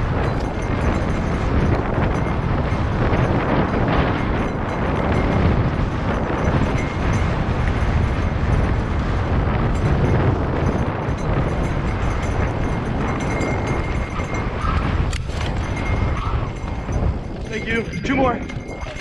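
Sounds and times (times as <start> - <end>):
bike tyres rumbling over rocks: 0.0 - 17.5
wind rushing over microphone: 0.0 - 19.0.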